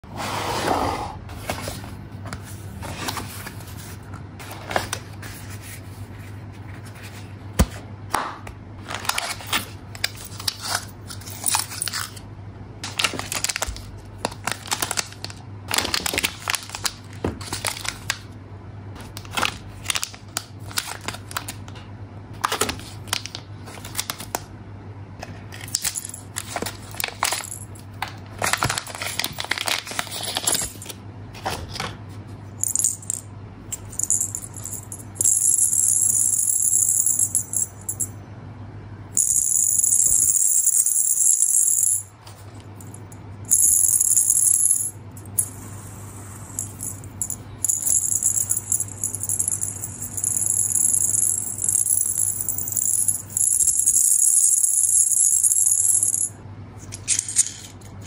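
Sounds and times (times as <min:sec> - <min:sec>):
tissue paper and foil rustling: 0:13.0 - 0:13.6, 0:28.4 - 0:30.6.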